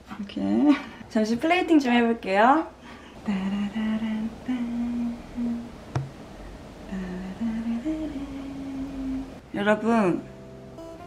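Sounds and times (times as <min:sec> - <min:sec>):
woman humming a slow tune: 0:03.3 - 0:05.8, 0:06.9 - 0:09.4.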